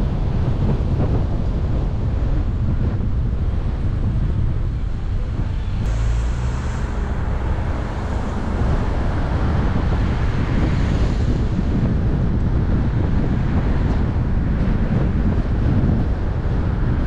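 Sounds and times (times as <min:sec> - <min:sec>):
road and tyre noise: 0:00.0 - 0:17.0
wind rushing over microphone: 0:00.0 - 0:17.0
brief hiss: 0:05.8 - 0:09.0.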